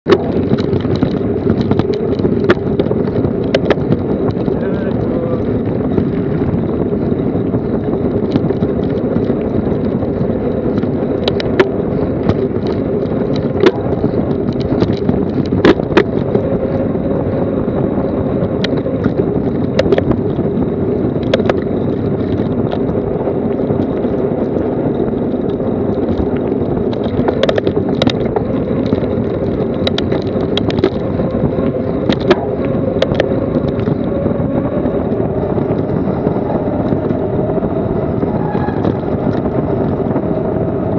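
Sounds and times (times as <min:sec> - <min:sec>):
tyre rumble and wind rush: 0:00.0 - 0:40.9
bike clicks and knocks: 0:00.1 - 0:04.9, 0:05.5 - 0:16.8, 0:18.1 - 0:34.3.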